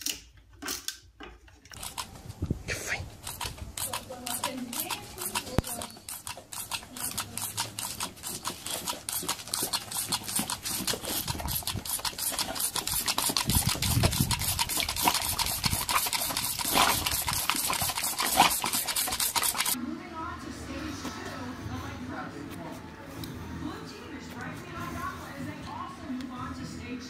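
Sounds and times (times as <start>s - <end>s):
dog lapping at water jet: 1.8s - 19.8s.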